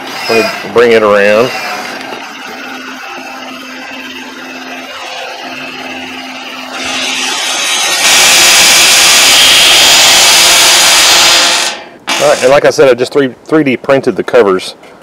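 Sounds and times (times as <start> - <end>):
loud steady rushing noise: 7.2 - 11.8.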